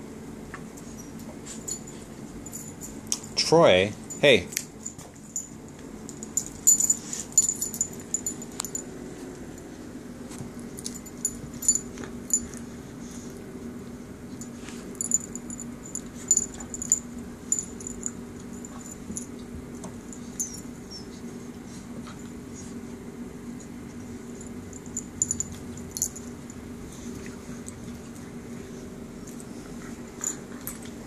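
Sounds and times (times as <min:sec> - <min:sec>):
dog play noises: 0:00.5 - 0:31.0
chain collar and tag jingling: 0:01.0 - 0:09.0, 0:10.8 - 0:12.5, 0:14.9 - 0:19.3, 0:24.4 - 0:26.6.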